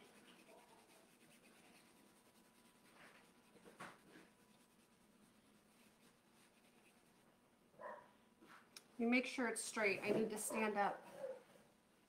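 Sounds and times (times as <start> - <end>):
soft rub on wooden board: 0.0 - 7.3.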